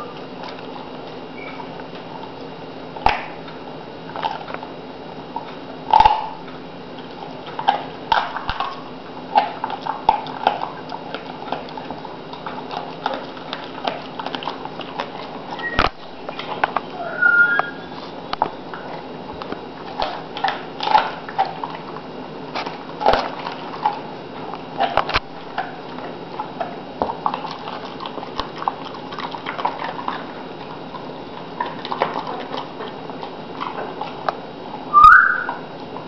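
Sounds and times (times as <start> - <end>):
dog licking and chewing: 0.0 - 17.0, 17.6 - 36.0.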